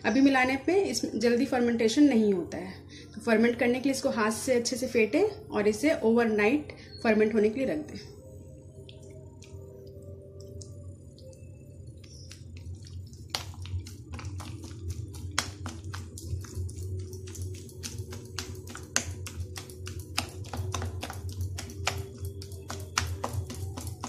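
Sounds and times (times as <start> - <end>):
hand beating batter in bowl: 8.8 - 24.0
wet slaps and clicks: 8.8 - 24.0.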